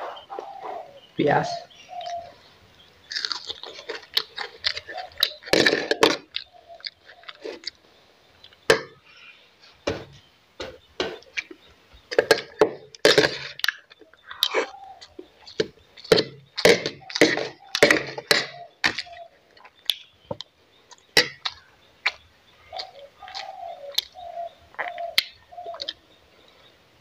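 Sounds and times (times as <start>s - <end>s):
chewing and crunching food: 1.8s - 9.1s, 10.7s - 26.7s
wet mouth clicks and lip smacks: 20.9s - 24.2s.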